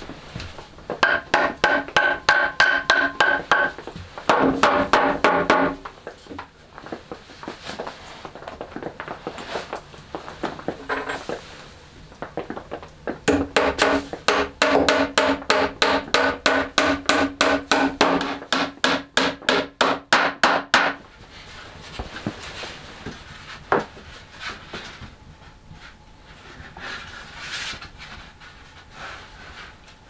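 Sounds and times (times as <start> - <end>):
hammer hitting nail: 1.0 - 3.7, 4.3 - 5.8, 13.3 - 21.0.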